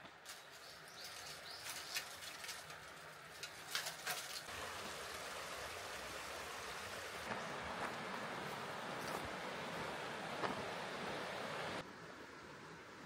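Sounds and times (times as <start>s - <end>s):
stream running over rocks: 0.1s - 13.0s
sharp clinks and rustles: 0.2s - 4.5s.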